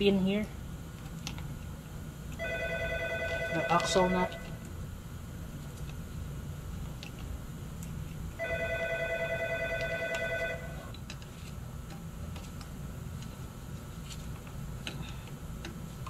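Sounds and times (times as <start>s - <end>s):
low steady hum: 0.0s - 16.0s
telephone ringing: 2.4s - 4.6s, 8.4s - 10.9s.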